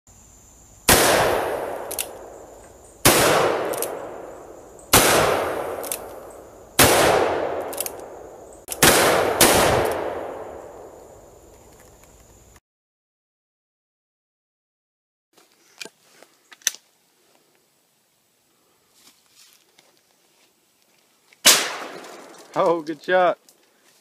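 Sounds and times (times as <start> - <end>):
shotgun blasts echoing: 0.9 - 2.4, 3.0 - 6.1, 6.8 - 11.0, 21.4 - 22.4.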